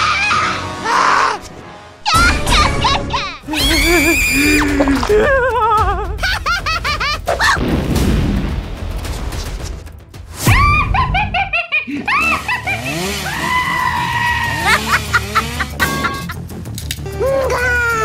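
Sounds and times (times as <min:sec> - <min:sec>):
cartoon music: 0:02.0 - 0:07.6, 0:14.6 - 0:18.0
loud boom: 0:07.6 - 0:09.0.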